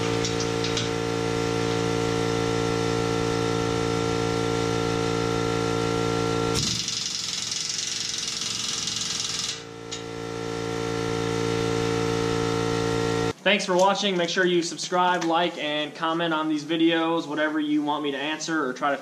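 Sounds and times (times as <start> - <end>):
air compressor drone: 0.0 - 13.4.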